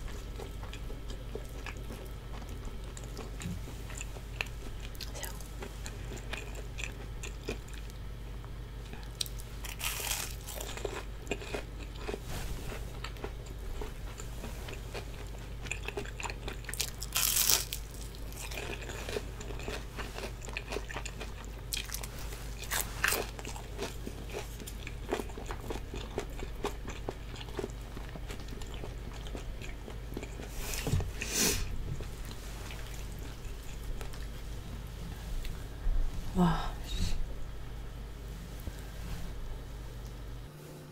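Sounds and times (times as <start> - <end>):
steady low hum: 0.0 - 40.9
crunchy bites and chewing: 8.8 - 30.5.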